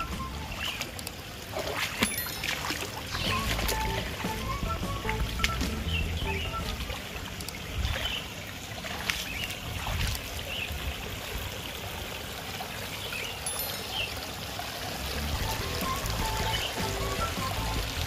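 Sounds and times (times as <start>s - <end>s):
water trickling over rocks: 0.0s - 18.0s.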